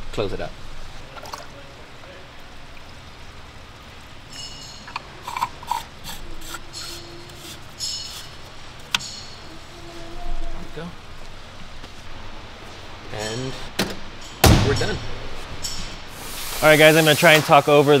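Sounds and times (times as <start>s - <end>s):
plastic cap ratcheting clicks: 4.9s - 7.0s.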